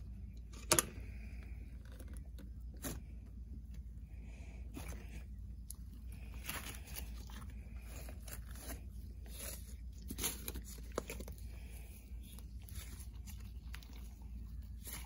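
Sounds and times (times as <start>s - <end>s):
slime crackling and tearing: 5.7s - 15.0s.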